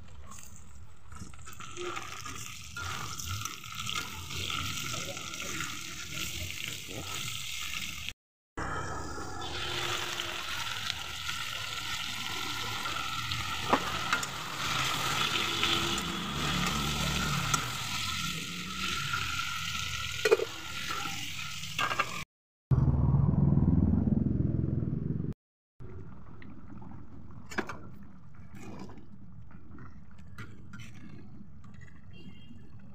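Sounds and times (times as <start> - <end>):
chicken frying and sizzling in oil: 0.0 - 8.2, 9.0 - 22.3
curry simmering: 0.2 - 8.1, 9.4 - 21.5
metal spatula scraping pan: 13.3 - 19.3
low rumble: 22.7 - 25.4.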